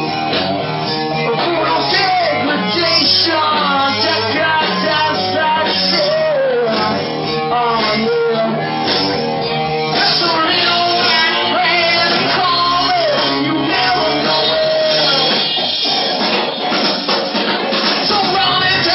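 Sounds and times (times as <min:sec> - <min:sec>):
electric bass: 0:00.0 - 0:16.8, 0:18.0 - 0:18.9
drum kit: 0:00.0 - 0:18.9
electric guitars: 0:00.0 - 0:18.9
man singing: 0:01.1 - 0:09.2, 0:09.9 - 0:15.8, 0:18.0 - 0:18.9.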